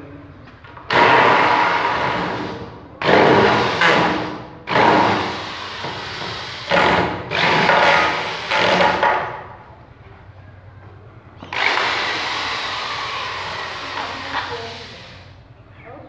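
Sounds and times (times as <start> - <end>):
electric drill bursts: 0.9 - 9.0, 11.4 - 15.4.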